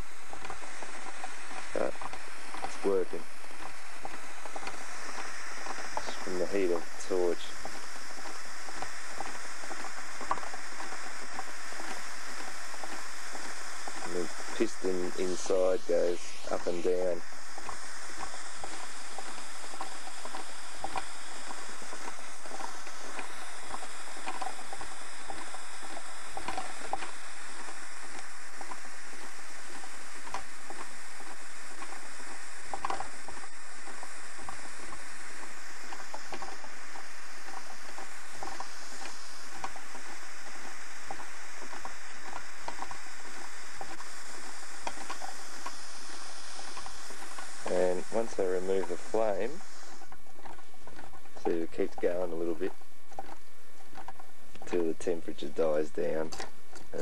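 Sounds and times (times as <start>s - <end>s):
torch flame hissing: 0.0s - 57.0s
small engine clicking and rattling: 0.2s - 32.0s, 44.8s - 57.0s.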